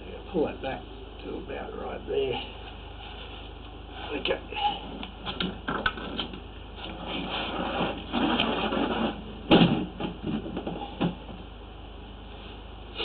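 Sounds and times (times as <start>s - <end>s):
scraping and rustling: 6.0s - 9.3s.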